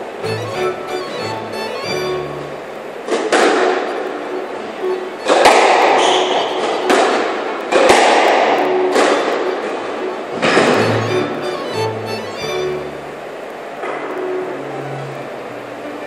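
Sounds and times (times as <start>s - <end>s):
squash ball hits: 5.3s - 9.4s.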